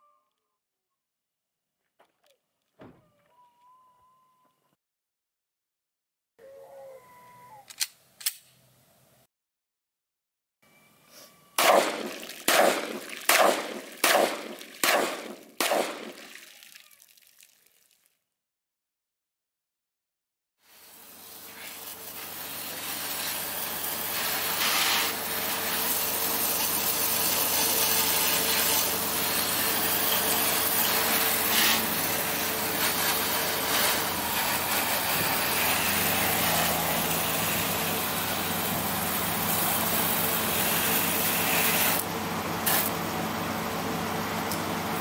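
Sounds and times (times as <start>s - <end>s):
pressure washer spraying water: 20.7s - 42.0s, 42.6s - 43.0s.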